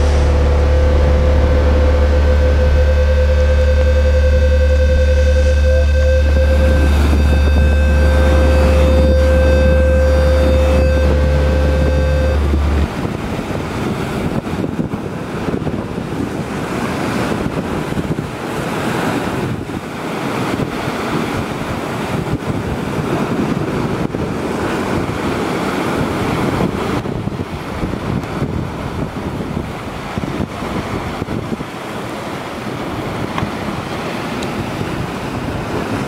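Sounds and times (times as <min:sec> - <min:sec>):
low music chord: 0:00.0 - 0:13.7
surf breaking over rocks: 0:00.0 - 0:36.0
wind on microphone: 0:00.0 - 0:36.0.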